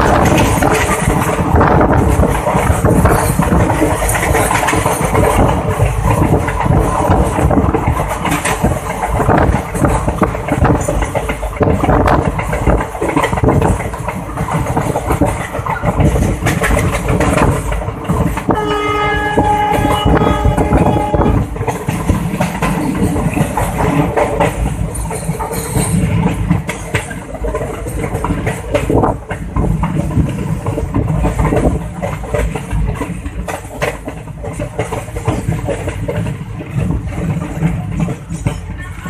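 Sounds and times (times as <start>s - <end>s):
train wheels clattering on track: 0.0s - 39.0s
wind buffeting: 0.0s - 39.0s
locomotive horn: 18.5s - 21.6s.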